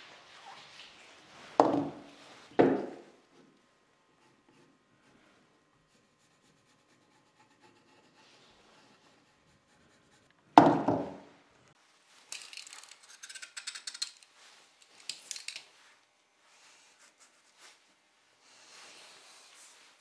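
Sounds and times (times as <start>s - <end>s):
pencil scratching on plywood: 4.2s - 10.3s
sharp wooden knock: 10.6s - 11.2s.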